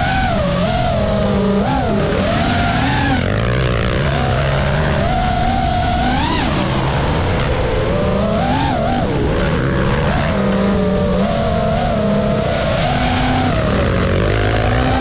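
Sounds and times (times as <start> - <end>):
dirt bike engines running: 0.0 - 15.0
drone propellers buzzing: 0.0 - 15.0.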